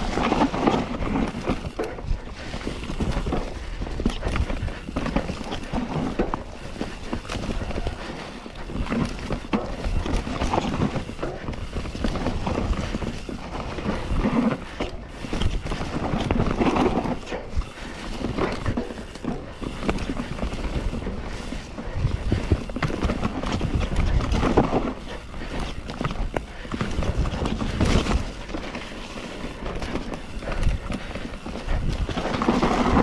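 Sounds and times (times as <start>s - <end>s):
bike clattering and rattling: 0.0s - 33.0s
tyres rumbling on dirt: 0.0s - 33.0s.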